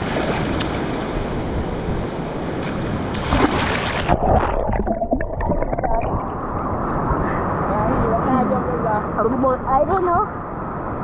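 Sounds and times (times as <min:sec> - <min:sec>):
water splashing: 0:02.6 - 0:07.1
muffled underwater bubbling: 0:04.0 - 0:06.5.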